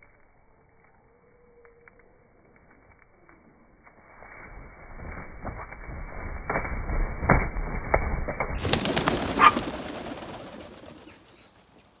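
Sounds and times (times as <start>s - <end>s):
dove wings clattering: 7.3s - 12.0s.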